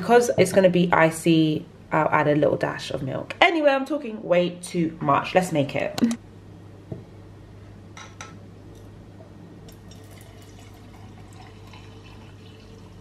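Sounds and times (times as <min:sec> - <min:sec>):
water pouring into a glass: 0:09.7 - 0:13.0.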